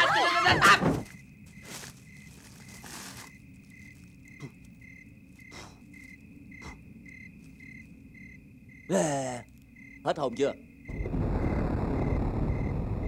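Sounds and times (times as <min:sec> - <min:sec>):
crickets chirping: 0:00.0 - 0:13.0
low rumble: 0:10.9 - 0:13.0.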